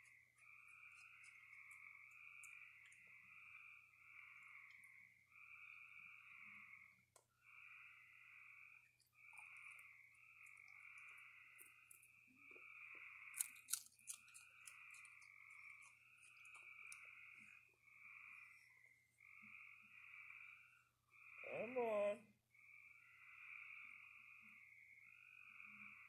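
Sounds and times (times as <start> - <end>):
raccoon chewing dry food: 0.0 - 5.0, 8.8 - 17.8
frogs trilling: 0.0 - 26.0.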